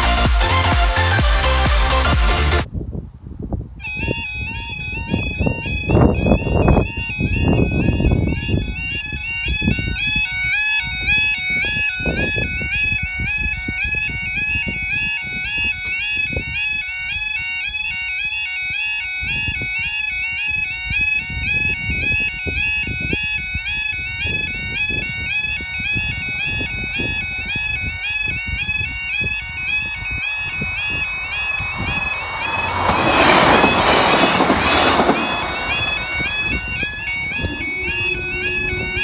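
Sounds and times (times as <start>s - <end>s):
two-tone warning alarm warble: 3.9s - 39.0s
low rumble: 30.0s - 39.0s.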